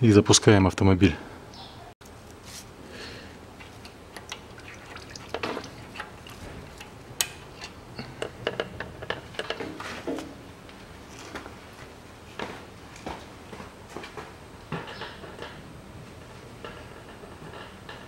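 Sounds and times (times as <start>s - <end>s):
fluid dripping: 3.6s - 7.0s.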